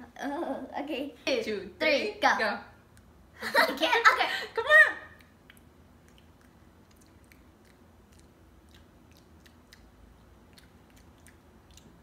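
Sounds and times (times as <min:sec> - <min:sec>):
wet chewing clicks: 0:05.2 - 0:12.0.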